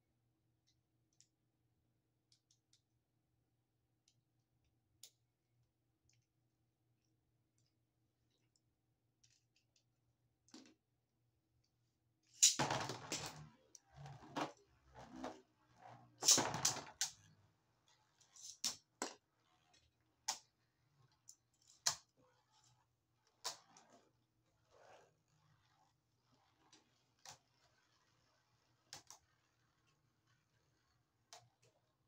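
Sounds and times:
spinning top launch zip and clatter: 12.4s - 14.1s, 14.9s - 17.3s.

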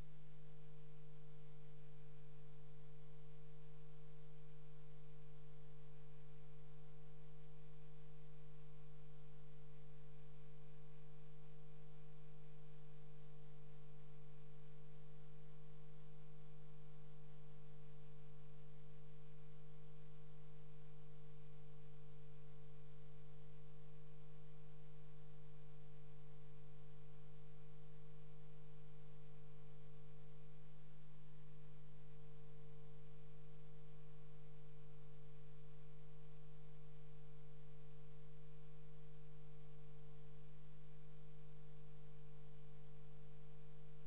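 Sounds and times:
faint high whine: 0.0s - 44.0s.

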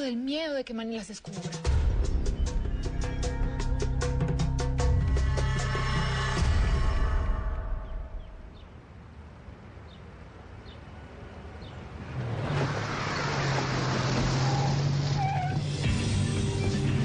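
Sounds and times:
car engine hum and tyre noise: 8.6s - 17.0s.

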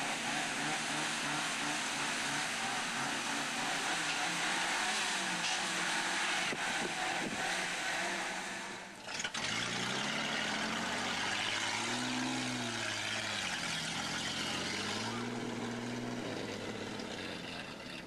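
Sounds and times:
truck engine revving: 0.0s - 18.0s.

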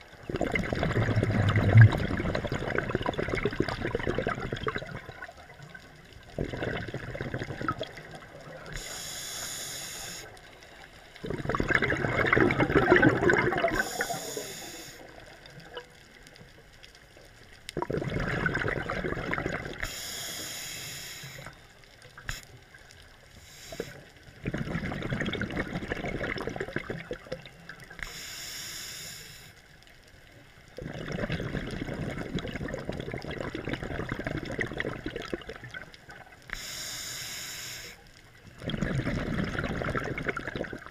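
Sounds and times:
bubbling exhaust air: 0.2s - 5.3s, 6.4s - 10.3s, 11.2s - 15.2s, 17.8s - 20.3s, 23.5s - 27.4s, 38.6s - 40.9s
regulator hiss on inhale: 8.6s - 11.3s, 13.7s - 15.4s, 19.8s - 22.7s, 23.3s - 24.4s, 28.0s - 29.8s, 36.5s - 38.2s.

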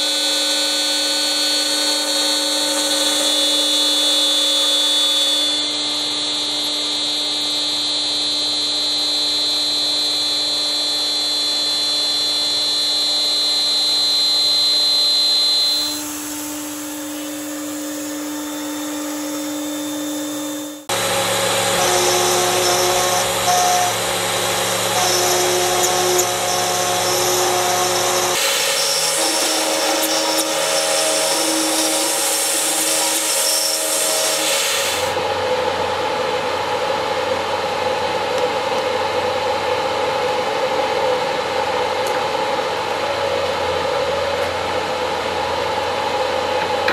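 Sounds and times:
router spindle milling metal: 0.0s - 35.2s.

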